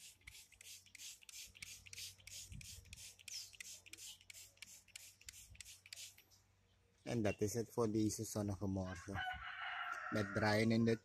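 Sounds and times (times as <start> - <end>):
spray bottle squirting: 0.0 - 6.3.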